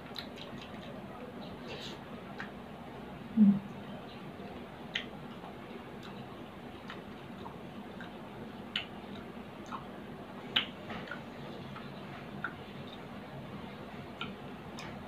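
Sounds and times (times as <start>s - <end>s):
person chewing food: 0.0s - 2.6s, 4.9s - 13.2s.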